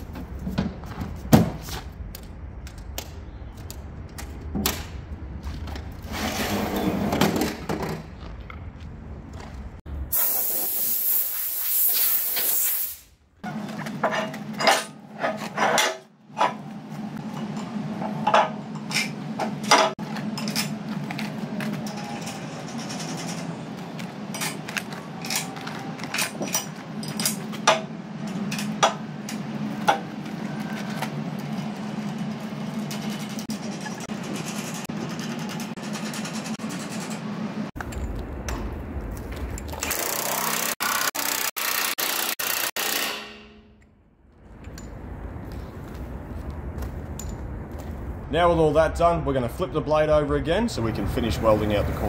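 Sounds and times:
loud hiss: 10.1 - 13.1
steel knocks and clanks: 13.5 - 16.6, 17.3 - 31.1.

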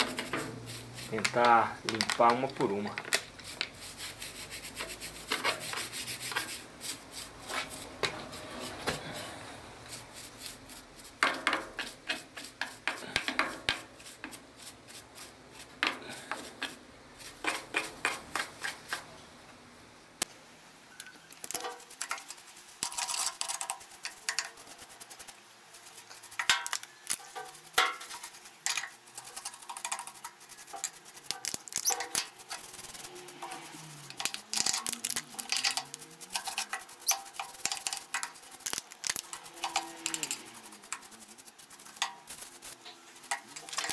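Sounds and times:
brush scrubbing metal: 0.0 - 19.1, 21.5 - 43.9.

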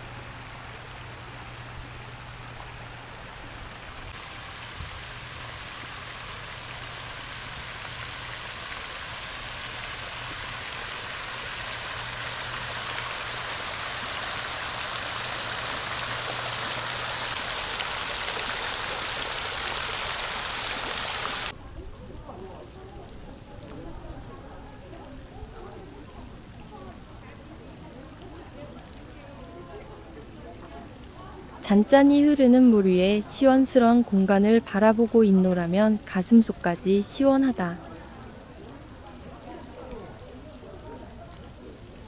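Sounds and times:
waterfall splashing into pool: 0.0 - 21.5.

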